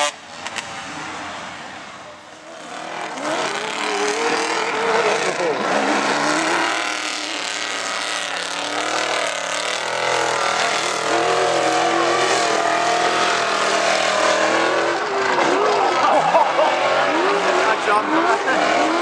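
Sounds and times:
truck engine revving: 2.3s - 19.0s.

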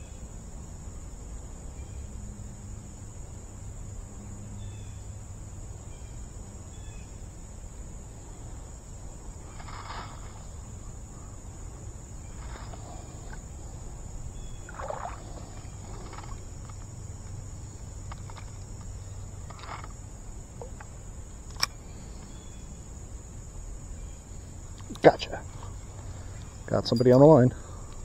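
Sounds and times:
crickets chirping: 0.0s - 28.0s
fishing rod handling rustles: 9.4s - 10.7s, 12.2s - 20.0s.

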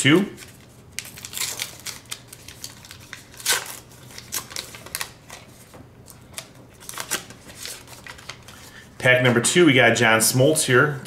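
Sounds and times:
foil wrapper crinkling: 0.4s - 5.6s, 6.3s - 8.8s.

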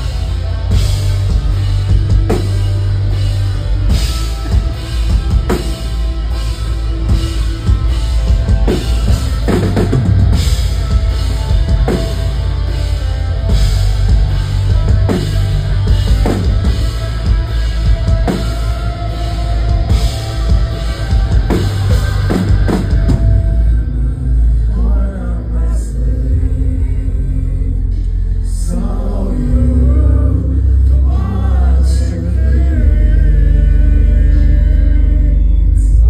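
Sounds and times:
live rock band playing: 0.0s - 24.6s
heavy drum hits: 6.9s - 23.8s.

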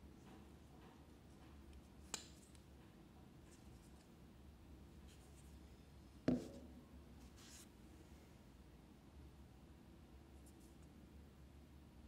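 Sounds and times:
knock: 6.3s - 6.7s.

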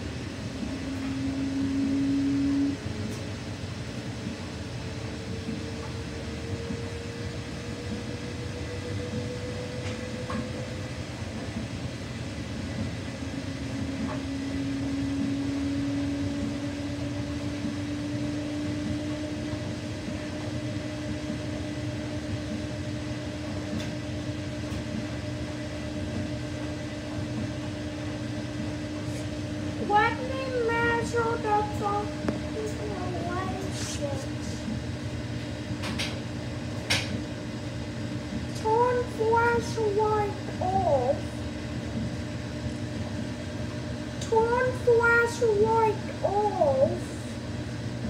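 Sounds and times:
motor whine rising in pitch: 0.0s - 35.7s
washing machine humming: 0.0s - 48.0s.

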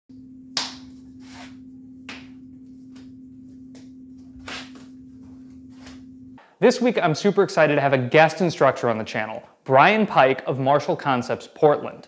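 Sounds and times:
low hum: 0.1s - 6.5s
hands slapping and swishing: 0.6s - 3.1s, 3.7s - 5.0s.

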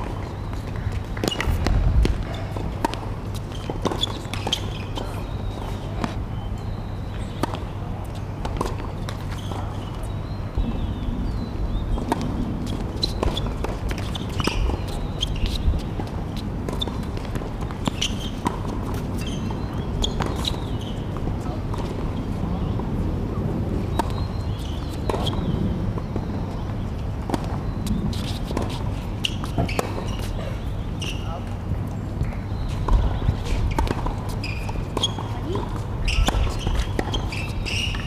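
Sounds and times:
tennis ball bouncing: 0.0s - 6.2s, 7.4s - 7.7s, 8.4s - 10.0s, 12.0s - 22.2s, 23.9s - 26.3s, 32.2s - 38.0s
steady low rumble: 1.5s - 3.3s, 10.5s - 13.0s.

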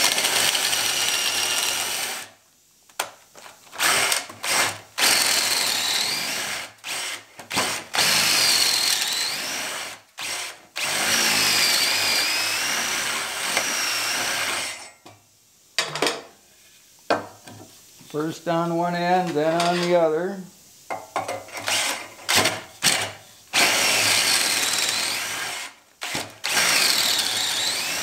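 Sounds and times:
cordless drill boring into wood: 0.0s - 2.3s, 3.8s - 14.8s, 21.6s - 28.0s.

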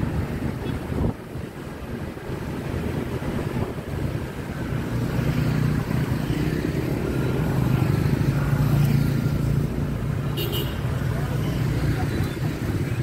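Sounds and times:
motorbikes and scooters passing: 0.0s - 13.0s.

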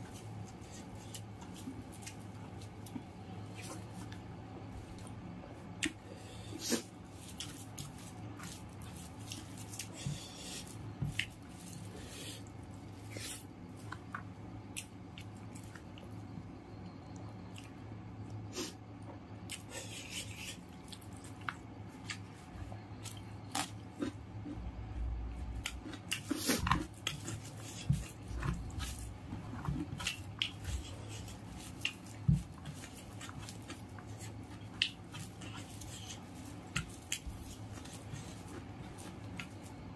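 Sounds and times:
wet squishing of rice by fingers: 6.6s - 18.7s, 25.5s - 39.9s
open-mouthed chewing: 25.6s - 39.8s.

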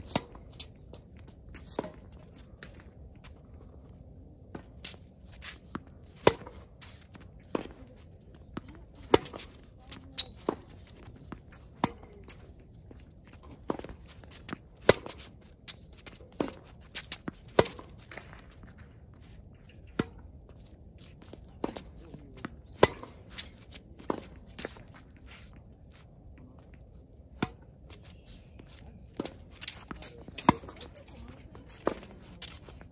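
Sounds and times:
racket hitting tennis ball: 0.0s - 0.7s, 5.4s - 7.8s, 8.5s - 12.4s, 13.4s - 15.3s, 16.2s - 18.4s, 19.8s - 20.3s, 21.6s - 24.7s, 27.3s - 27.7s, 29.2s - 32.9s
tennis ball bouncing: 5.7s - 7.8s, 8.4s - 15.3s, 16.0s - 18.4s, 19.8s - 20.3s, 21.6s - 24.4s, 27.3s - 27.7s, 29.1s - 32.9s
footsteps on court: 27.9s - 32.9s.

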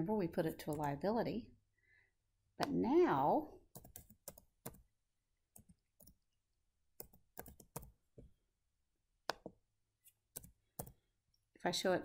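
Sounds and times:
computer keyboard typing: 3.7s - 4.8s, 7.0s - 8.0s, 10.3s - 11.0s.

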